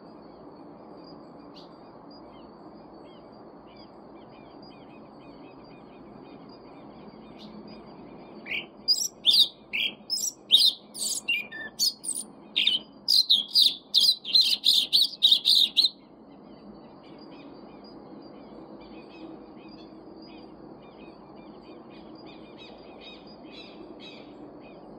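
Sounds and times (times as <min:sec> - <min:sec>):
faint bird chirps: 0:00.0 - 0:24.9.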